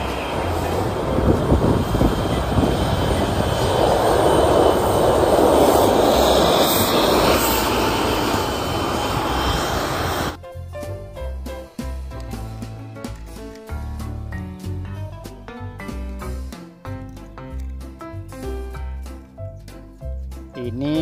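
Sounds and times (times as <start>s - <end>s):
tank engine and tracks: 0.0s - 10.4s.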